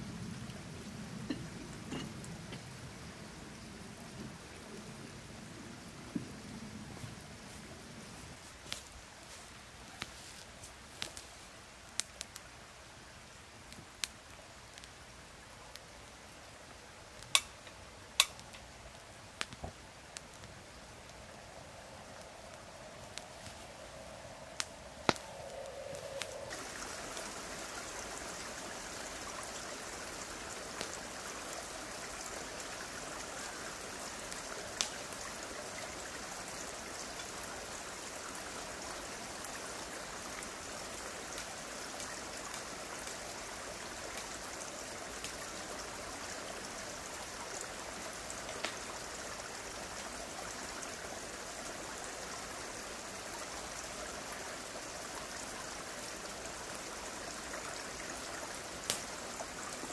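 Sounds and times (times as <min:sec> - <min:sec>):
mountain stream rushing: 0:21.6 - 0:59.9.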